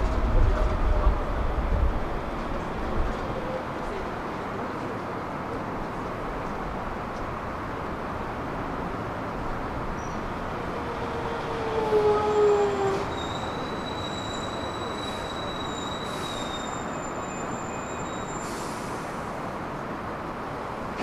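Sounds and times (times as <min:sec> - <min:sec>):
train running rumble: 0:00.0 - 0:04.8
wavering train squeal: 0:10.0 - 0:19.2.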